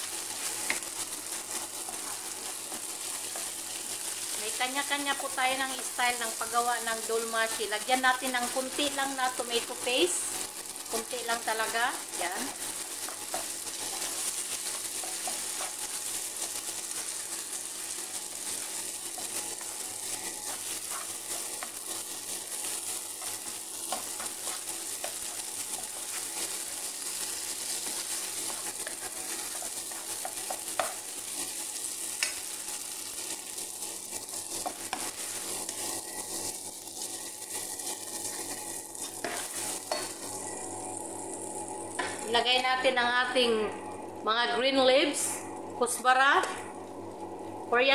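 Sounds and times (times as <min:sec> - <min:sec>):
rice sizzling in a frying pan: 0:00.0 - 0:47.9
wooden spatula scraping a pan: 0:18.5 - 0:26.8.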